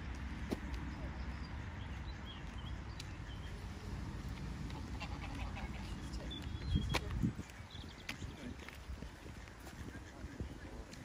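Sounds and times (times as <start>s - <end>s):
small birds chirping: 0.0s - 11.0s
ducks quacking: 4.7s - 6.3s, 9.2s - 11.0s.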